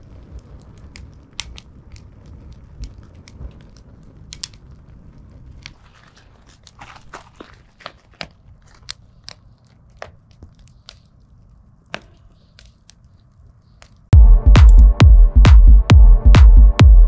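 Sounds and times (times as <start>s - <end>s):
campfire crackling: 0.0s - 14.1s
fire popping: 0.0s - 14.1s.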